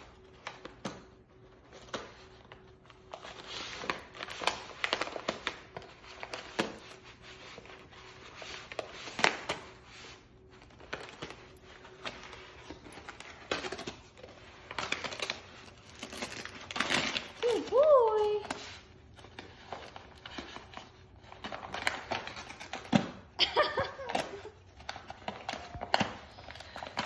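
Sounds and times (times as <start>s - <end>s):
paper bag crinkling and tearing: 8.0s - 18.6s.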